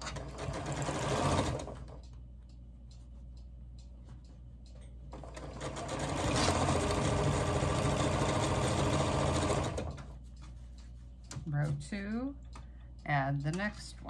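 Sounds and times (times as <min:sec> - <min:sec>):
electric sewing machine stitching: 0:00.0 - 0:01.8, 0:05.2 - 0:10.0.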